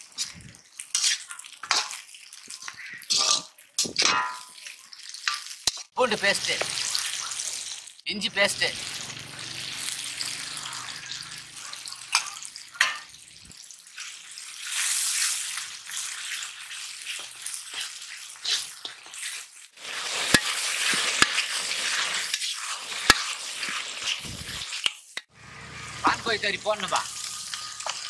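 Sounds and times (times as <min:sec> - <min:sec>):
metal ladle scraping a pan: 0:00.0 - 0:05.8, 0:09.8 - 0:13.2, 0:14.0 - 0:26.0, 0:26.9 - 0:28.0
masala sizzling in a pan: 0:00.0 - 0:28.0.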